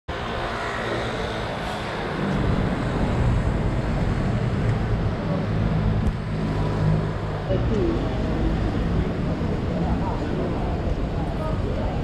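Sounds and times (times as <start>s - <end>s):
street traffic noise: 0.1s - 12.0s
vehicle engine humming nearby: 0.1s - 12.0s.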